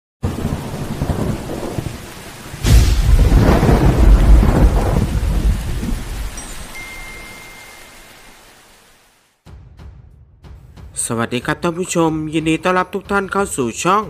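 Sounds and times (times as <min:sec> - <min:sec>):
low rumbling thunder: 0:00.2 - 0:06.4
sharp thunderclap: 0:00.2 - 0:06.4
rain hiss: 0:00.2 - 0:09.4.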